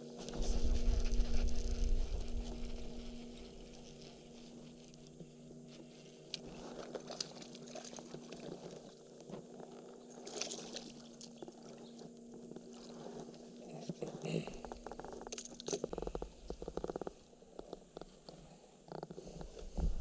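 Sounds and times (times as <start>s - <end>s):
faint steady hum: 0.0s - 20.0s
low rumble: 0.1s - 5.5s
water splashing by kayak: 5.9s - 13.2s.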